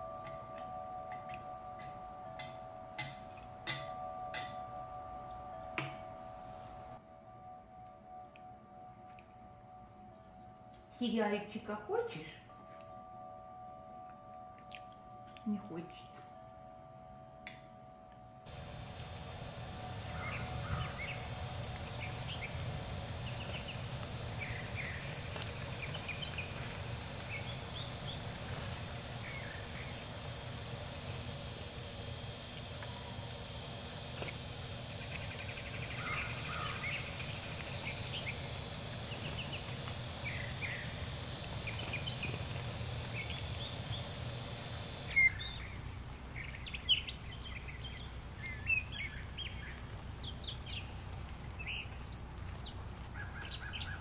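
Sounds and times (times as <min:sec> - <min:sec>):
pulsing insect trill: 0:12.5 - 0:51.8
bird chirps: 0:18.2 - 0:51.0.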